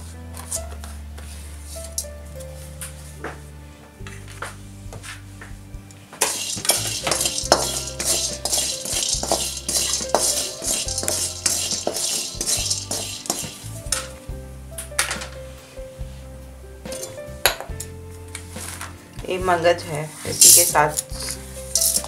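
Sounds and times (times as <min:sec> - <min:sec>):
background music with bass line: 0:00.0 - 0:22.0
metal spatula scraping roasting seeds: 0:06.2 - 0:14.2, 0:16.9 - 0:17.2, 0:18.4 - 0:19.0, 0:20.1 - 0:22.0.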